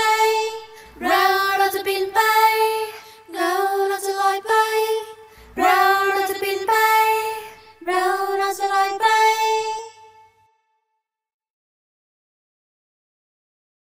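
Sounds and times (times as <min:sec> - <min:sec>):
women singing a cappella: 0:00.0 - 0:10.4.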